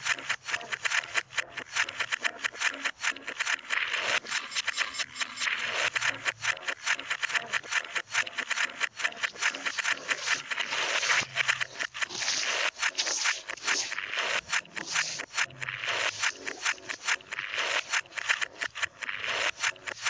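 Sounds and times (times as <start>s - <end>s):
rapid scraping strokes: 1.6s - 20.0s.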